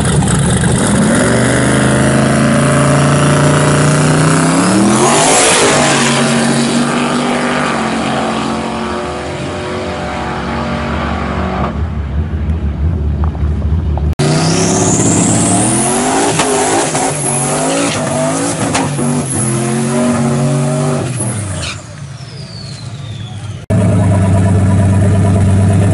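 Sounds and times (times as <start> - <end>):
turbo pickup revving with whistle: 14.2 - 25.9.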